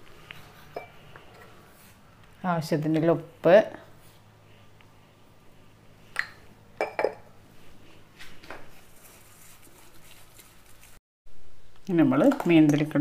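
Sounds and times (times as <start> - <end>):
hand mixing with rustling scrape: 7.5 - 11.0.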